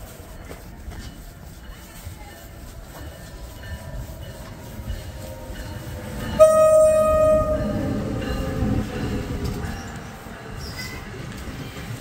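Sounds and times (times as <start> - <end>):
train rumbling: 0.0 - 12.0
train horn blast: 5.2 - 8.4.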